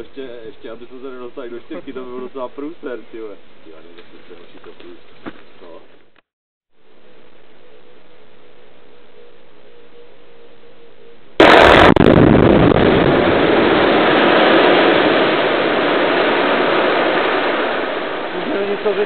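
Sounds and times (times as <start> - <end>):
quarry blast detonation: 11.4 - 19.0
rock collapsing rumble: 11.4 - 19.0.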